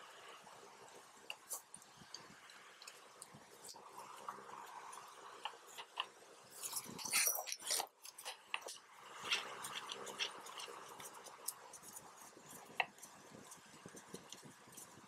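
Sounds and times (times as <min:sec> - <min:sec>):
metal parts scraping and rattling: 0:06.5 - 0:09.4.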